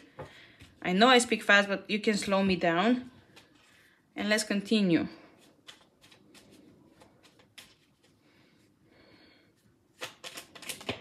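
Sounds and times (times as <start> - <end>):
soft clicks of cards handled: 5.4 - 8.2.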